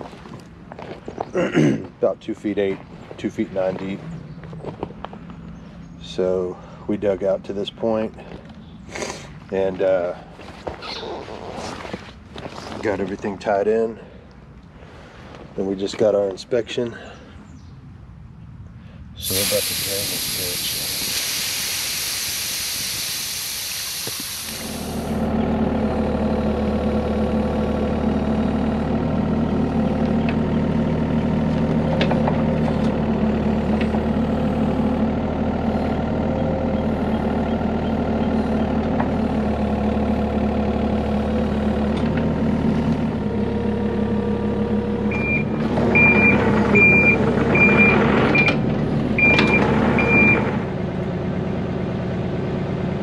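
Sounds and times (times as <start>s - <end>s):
hissing rush of air: 19.2s - 25.2s
excavator engine running: 19.2s - 53.0s
travel alarm beeping: 45.1s - 48.6s, 49.2s - 50.5s.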